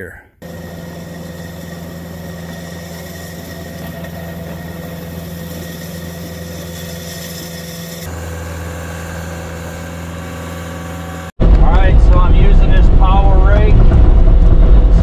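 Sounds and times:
rake scraping gravel: 0:00.4 - 0:08.1
diesel engine running: 0:00.4 - 0:15.0.

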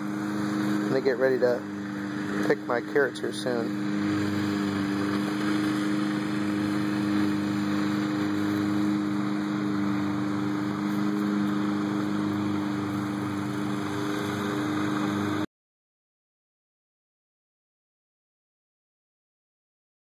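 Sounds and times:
engine humming steadily: 0:00.0 - 0:15.5.

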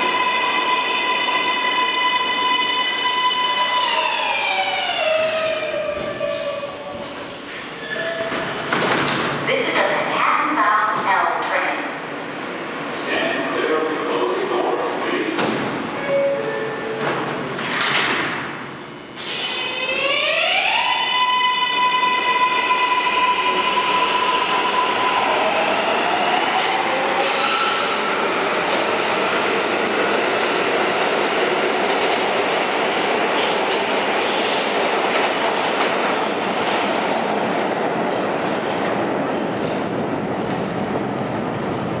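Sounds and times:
train cars rumbling: 0:00.0 - 0:19.6.

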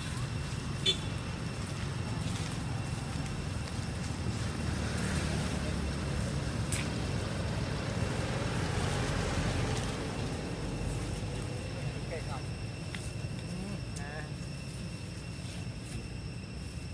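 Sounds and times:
low outdoor rumble: 0:00.0 - 0:16.9.

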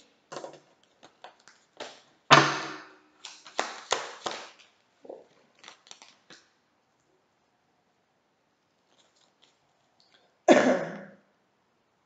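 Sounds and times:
cards being shuffled: 0:03.2 - 0:04.8.

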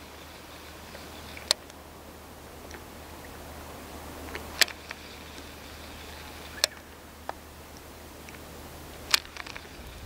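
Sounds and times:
faint ticks: 0:00.0 - 0:01.8, 0:02.6 - 0:03.4, 0:04.2 - 0:10.0
faint background noise: 0:00.0 - 0:10.0
sharp clicks: 0:01.4 - 0:01.8, 0:04.3 - 0:05.5, 0:06.6 - 0:08.4, 0:09.1 - 0:09.8.

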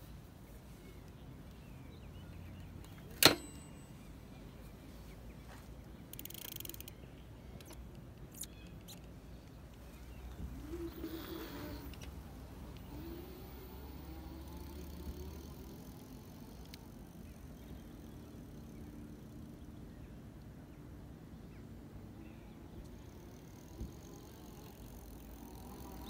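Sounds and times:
sharp click: 0:02.8 - 0:03.8.

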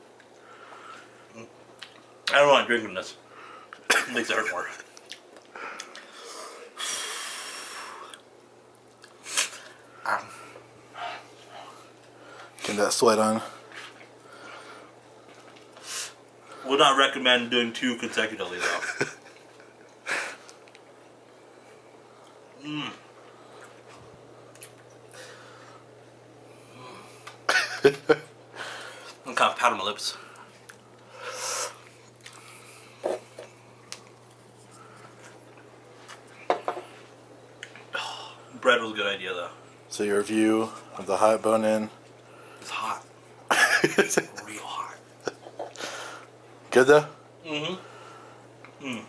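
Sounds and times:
breath: 0:00.4 - 0:01.1, 0:25.1 - 0:25.9, 0:45.8 - 0:46.3, 0:47.9 - 0:48.4
man coughing: 0:03.9 - 0:04.2, 0:43.5 - 0:43.9
sharp nasal breaths: 0:31.1 - 0:31.8.

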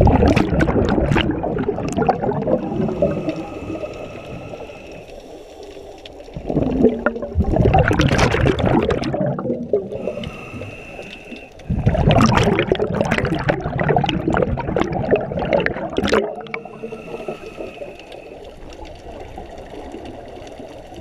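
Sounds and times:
diver's bubbling exhalation: 0:00.0 - 0:03.9, 0:06.4 - 0:10.7, 0:11.7 - 0:17.4.

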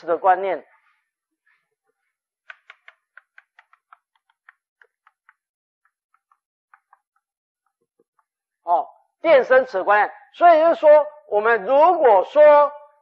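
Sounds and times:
chalk tapping on chalkboard: 0:02.4 - 0:08.3.

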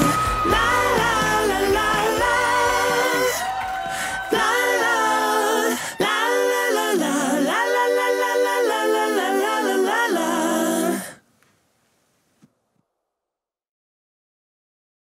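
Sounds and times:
song with harmony vocals: 0:00.0 - 0:11.2.

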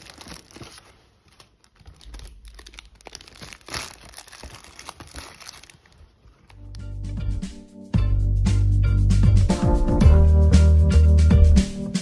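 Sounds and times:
paper bag crinkling: 0:00.0 - 0:06.8.

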